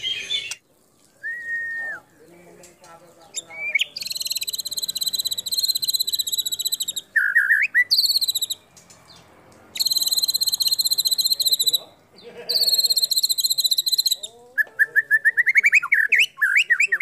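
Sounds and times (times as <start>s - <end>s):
bird singing rattling trills: 0.0s - 1.3s, 2.0s - 17.0s
bird whistled notes: 1.2s - 2.0s, 3.4s - 8.6s, 9.8s - 11.8s, 12.6s - 17.0s.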